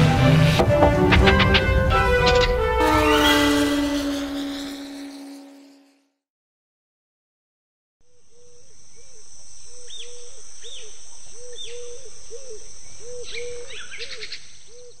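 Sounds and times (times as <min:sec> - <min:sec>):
high insect drone: 0:02.0 - 0:06.0, 0:08.0 - 0:14.7
bird chirps and trills: 0:08.1 - 0:15.0.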